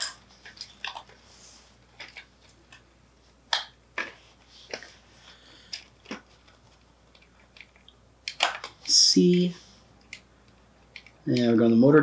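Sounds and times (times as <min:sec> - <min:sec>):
plastic connectors clicking: 0:07.1 - 0:09.4, 0:10.0 - 0:11.5.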